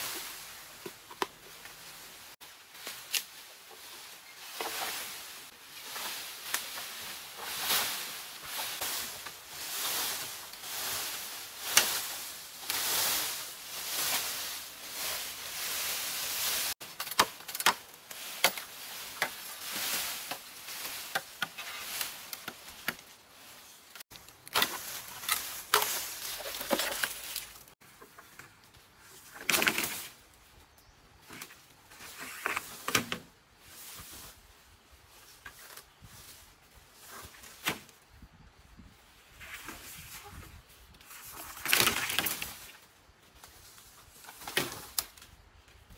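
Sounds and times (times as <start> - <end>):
pole dragged through brush: 0.0 - 16.8, 17.9 - 28.3, 38.8 - 42.8
bamboo leaves rustling: 0.0 - 45.9
machete chopping branches: 16.8 - 19.5.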